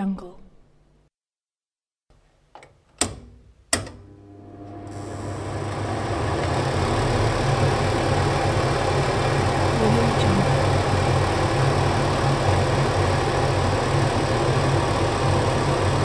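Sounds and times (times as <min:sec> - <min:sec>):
exhaust fan running: 0:04.0 - 0:16.0.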